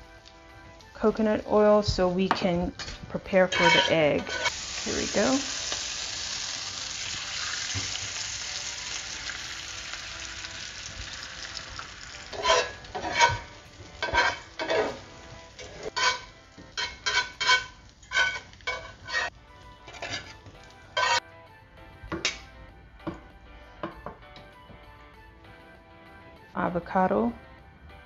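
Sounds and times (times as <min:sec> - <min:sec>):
eggs sizzling in a skillet: 0:01.7 - 0:21.2
metal spatula scraping a pan: 0:02.7 - 0:04.6, 0:12.2 - 0:21.2.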